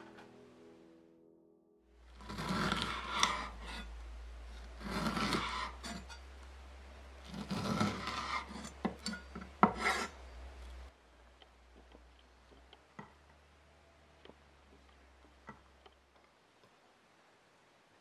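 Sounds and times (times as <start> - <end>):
blade scraping wooden board: 2.1 - 6.2, 7.2 - 10.3
knife slicing fish fillet: 2.2 - 3.9, 4.7 - 6.2, 7.2 - 10.2.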